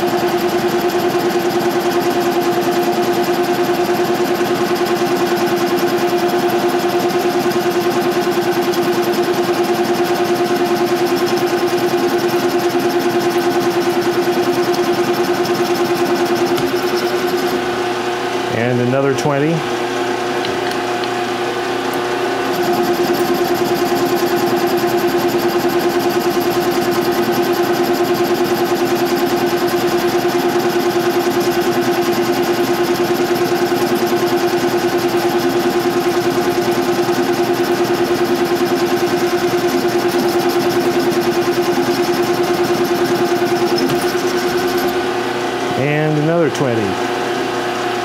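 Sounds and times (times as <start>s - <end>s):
metal lathe whining: 0.0s - 18.0s, 21.9s - 46.2s
boring bar pulsing cut: 8.3s - 17.7s, 22.5s - 45.1s.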